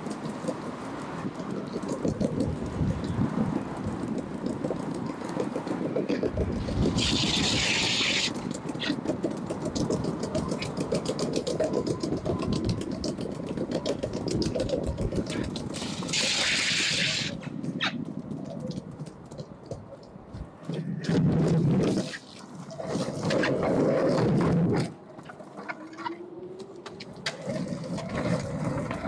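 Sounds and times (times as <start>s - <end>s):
longboard wheels rolling on paving: 0.0s - 29.0s
burst of hiss: 15.8s - 17.4s.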